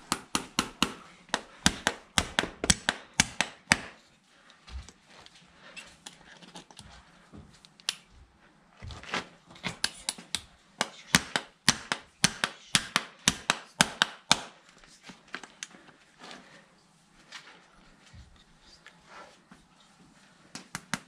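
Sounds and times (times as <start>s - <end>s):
hammer tapping nails into metal: 0.1s - 4.0s, 11.2s - 14.5s.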